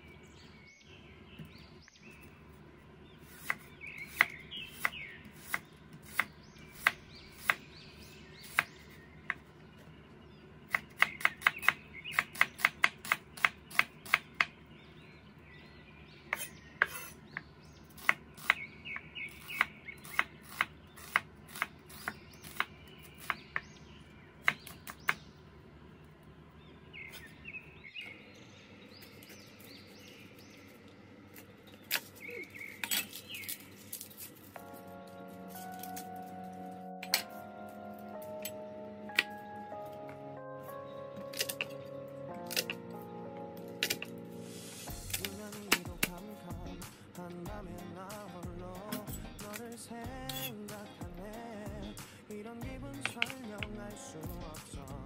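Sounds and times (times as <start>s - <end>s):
faint bird chirps: 3.2s - 12.7s, 13.4s - 25.4s, 31.8s - 33.6s
garlic skin crackling: 29.2s - 34.6s.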